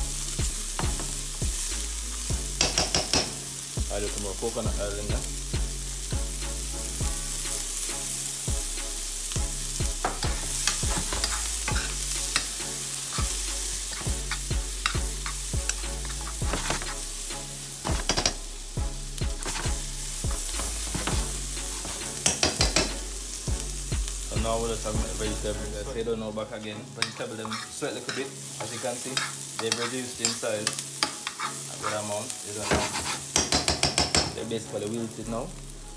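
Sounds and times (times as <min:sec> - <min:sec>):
vegetables sizzling in oil: 0:00.0 - 0:35.9
metal spoon scraping pan: 0:10.0 - 0:18.5, 0:19.4 - 0:23.1, 0:26.9 - 0:34.3.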